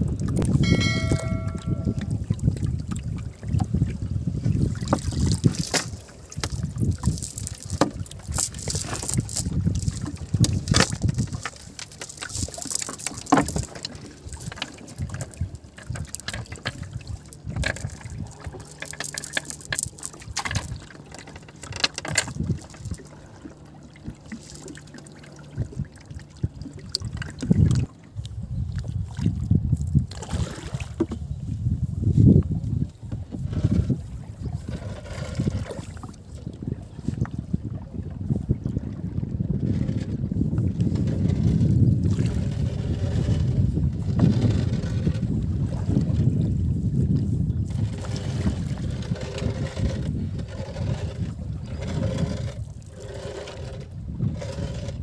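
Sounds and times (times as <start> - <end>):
river water splashing and dripping: 0.0 - 31.2.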